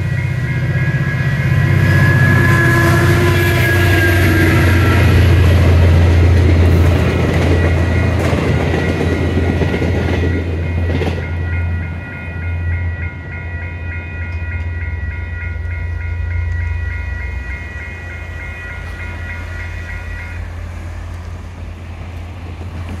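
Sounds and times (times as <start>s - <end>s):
level crossing bell ringing: 0.0s - 5.6s, 7.2s - 20.6s
train wheels clacking over rail joints: 3.2s - 11.4s.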